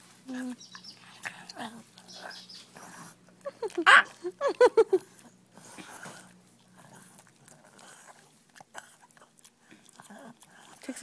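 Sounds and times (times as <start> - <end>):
dog chewing treat: 5.0 - 11.0.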